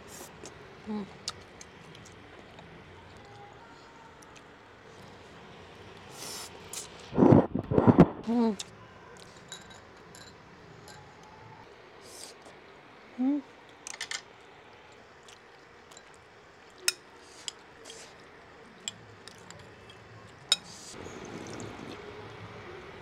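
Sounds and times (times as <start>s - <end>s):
person humming: 13.2s - 13.5s
slurping broth: 20.6s - 22.2s.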